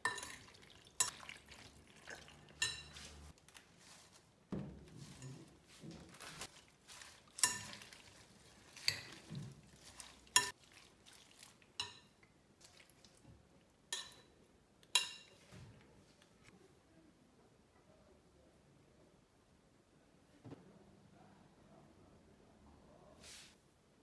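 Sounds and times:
metal spoon clinking glass bowl: 0.0s - 3.2s, 7.4s - 9.3s, 10.0s - 10.6s, 11.8s - 12.2s, 13.9s - 15.4s
rustling of salad leaves: 0.4s - 12.0s.

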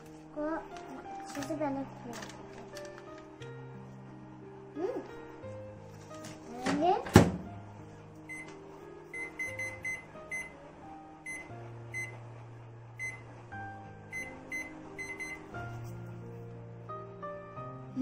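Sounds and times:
microwave door shutting: 6.6s - 7.5s
keypad beeps: 8.3s - 8.6s, 9.2s - 10.6s, 11.3s - 12.2s, 13.0s - 13.2s, 14.1s - 15.5s.

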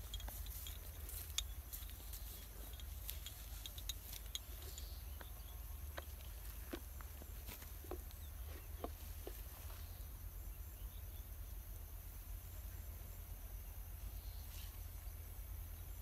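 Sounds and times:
small clicks and rustles: 0.0s - 9.8s.

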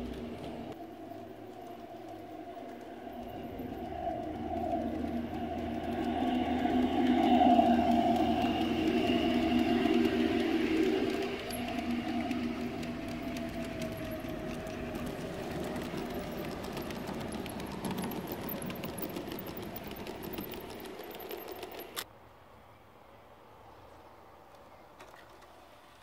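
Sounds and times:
model train wheels clicking: 0.0s - 22.1s
train running rattle: 0.0s - 22.1s.

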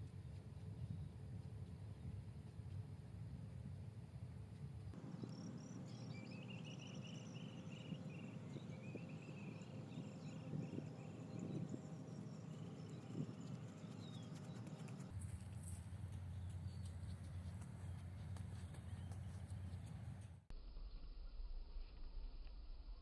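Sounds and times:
low outdoor rumble: 0.1s - 23.0s
bird chirping: 4.6s - 20.4s.

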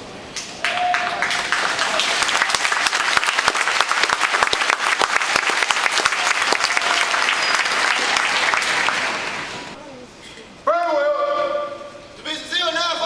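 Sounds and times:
audience applauding: 0.6s - 9.8s.

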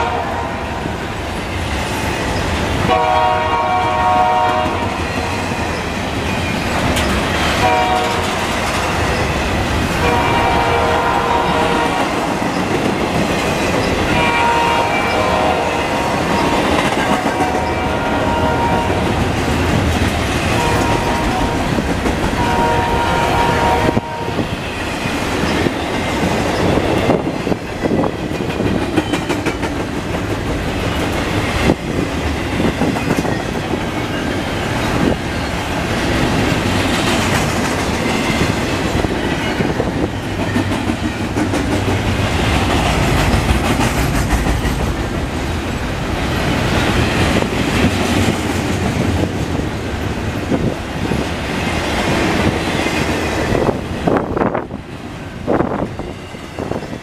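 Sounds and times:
freight train rumbling past: 0.0s - 57.0s
wheels clacking over rail joints: 4.5s - 22.8s, 24.8s - 49.7s.

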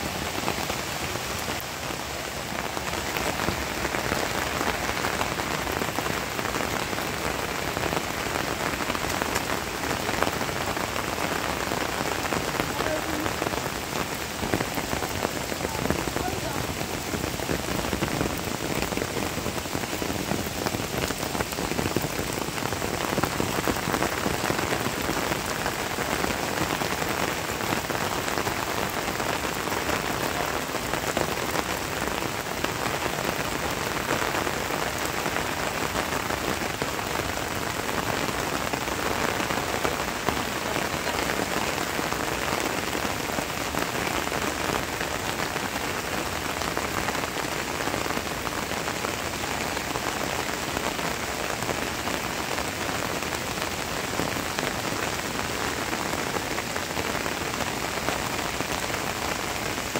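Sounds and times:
rain falling on rocks: 0.0s - 59.9s.

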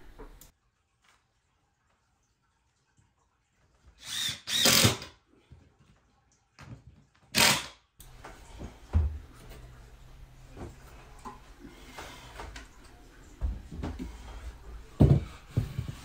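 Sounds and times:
cordless drill driving screws: 4.0s - 5.1s, 7.4s - 7.7s.

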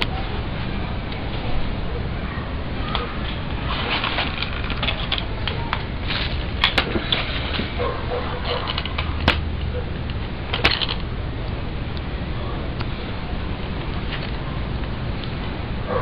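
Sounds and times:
sharp clicks and knocks: 8.4s - 11.1s.

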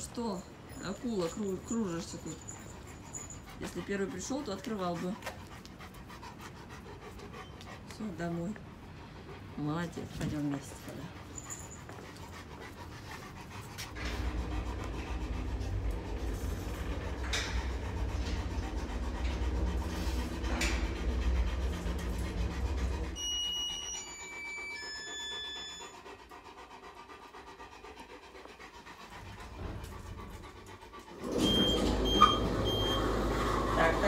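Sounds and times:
dog panting: 0.0s - 34.0s
low rumble: 13.4s - 23.2s.

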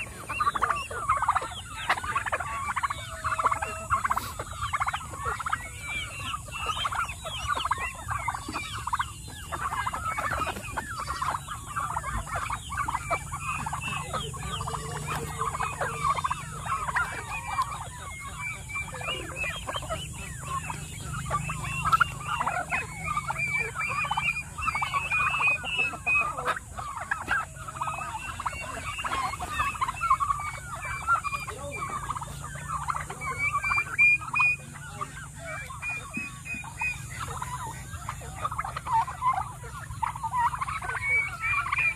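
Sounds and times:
turkeys and chickens calling: 0.0s - 41.9s.

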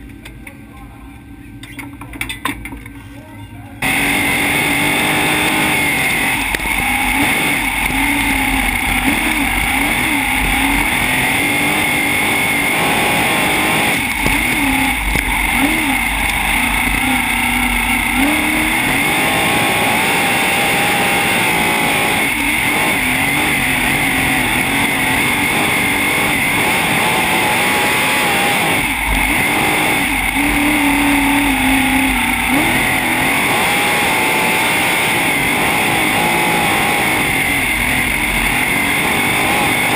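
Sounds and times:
race car engine running hard: 3.8s - 39.9s.

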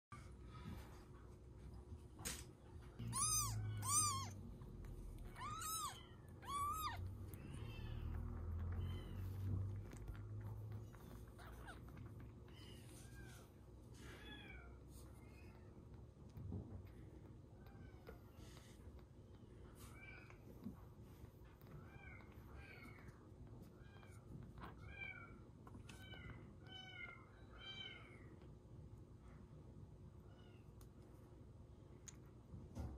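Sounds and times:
kitten mewing: 3.0s - 10.4s.

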